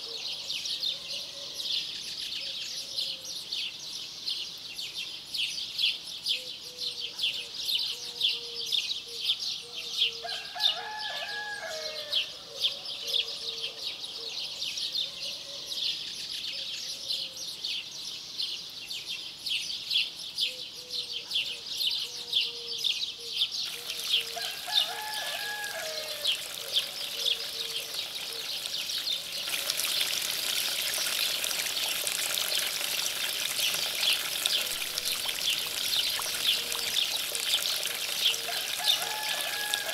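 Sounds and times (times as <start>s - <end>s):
small birds chirping: 15.8s - 39.3s
running water: 23.6s - 39.9s.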